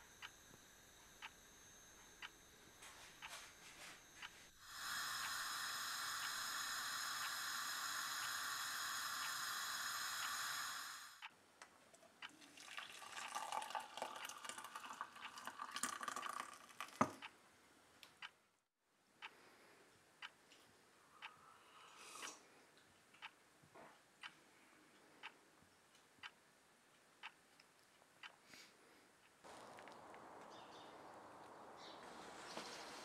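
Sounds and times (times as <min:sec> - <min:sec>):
tea pouring through a strainer: 0:11.8 - 0:17.2
water running: 0:11.8 - 0:17.2.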